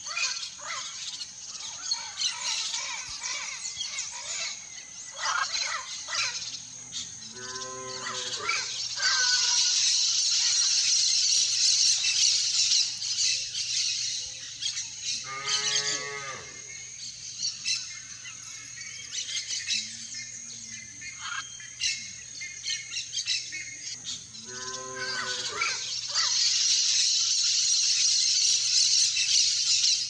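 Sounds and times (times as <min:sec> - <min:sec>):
cattle mooing: 0:24.4 - 0:25.6.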